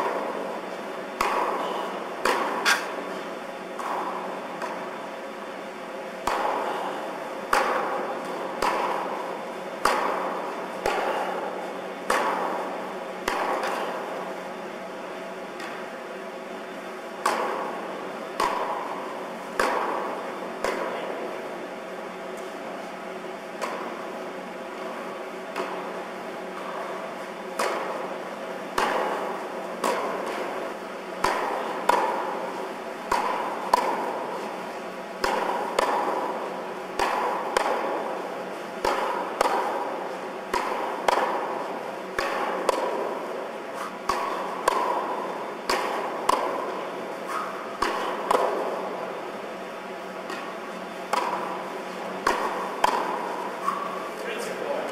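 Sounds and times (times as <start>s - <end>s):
tennis rackets hitting balls: 0.0s - 4.9s, 6.2s - 14.6s, 15.2s - 16.0s, 17.2s - 54.9s
tennis ball bounces: 33.1s - 34.2s, 35.2s - 36.3s, 38.8s - 39.9s, 40.5s - 41.5s, 42.1s - 43.1s, 43.8s - 48.9s, 50.2s - 54.2s.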